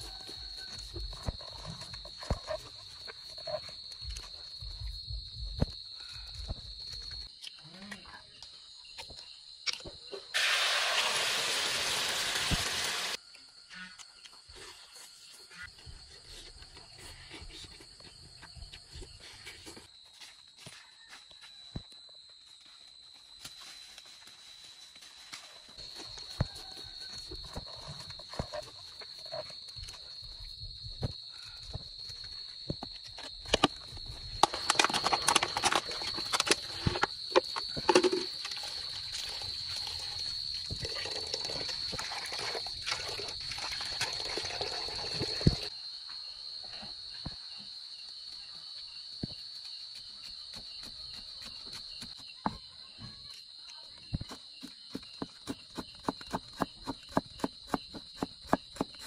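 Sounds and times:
crickets sloshed and rubbed by hand: 0:00.0 - 0:07.6, 0:08.2 - 0:21.6, 0:22.2 - 0:52.4
high-pitched insect trilling: 0:22.5 - 0:46.6.

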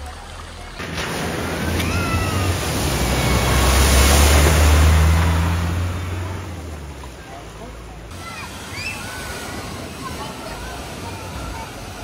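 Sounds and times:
vehicle engine drone: 0:00.0 - 0:08.1
water rushing: 0:00.0 - 0:12.0.

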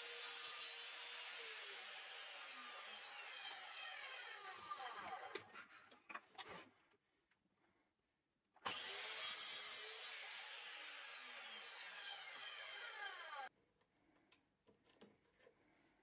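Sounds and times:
mitre saw cutting plywood: 0:00.0 - 0:05.7, 0:08.6 - 0:13.5.

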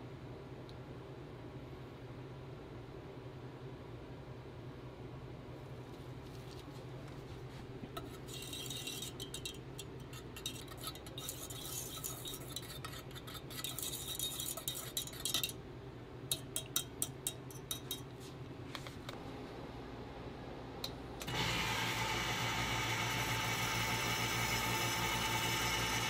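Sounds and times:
whisk frothing milk: 0:07.9 - 0:15.6.

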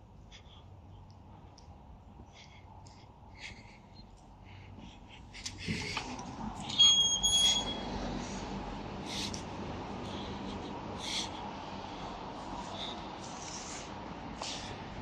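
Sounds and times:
door squeak: 0:06.6 - 0:07.9.

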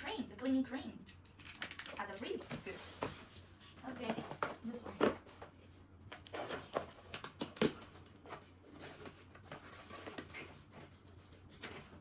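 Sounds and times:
packing tape crackling: 0:01.2 - 0:02.3.

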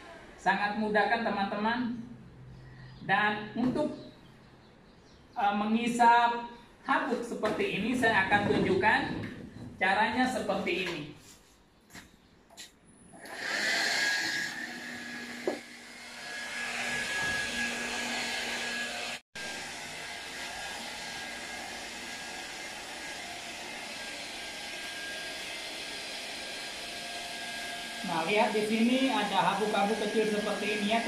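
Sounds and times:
cordless vacuum cleaner whining: 0:13.2 - 0:31.0.

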